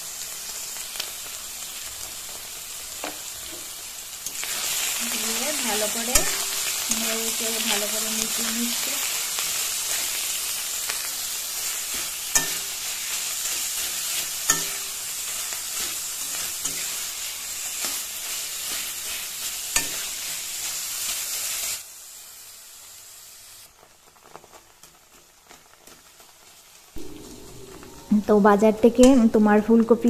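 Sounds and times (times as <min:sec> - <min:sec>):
paste sizzling in oil: 0:00.0 - 0:30.0
spatula stirring: 0:04.2 - 0:20.4
spatula clinking against pan: 0:12.3 - 0:12.7, 0:14.4 - 0:14.8.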